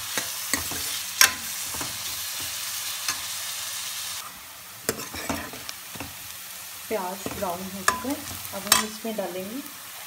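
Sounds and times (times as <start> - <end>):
metal spoon scraping a pan: 0.0 - 3.4, 4.2 - 6.3, 7.2 - 9.0
onions sizzling in hot fat: 0.0 - 10.0.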